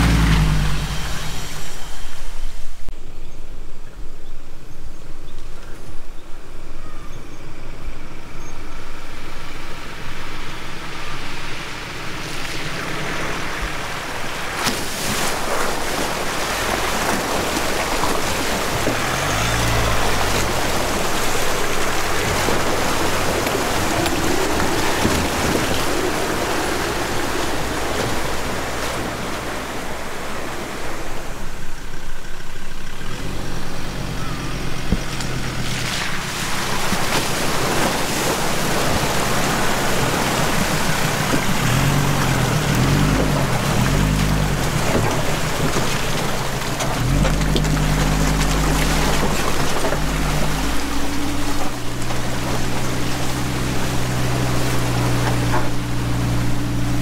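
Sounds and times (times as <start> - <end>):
second vehicle engine approaching: 0.0 - 3.0, 15.4 - 57.0
vehicle engine under load: 0.0 - 3.0, 7.6 - 57.0
water splashing around tyres: 9.2 - 57.0.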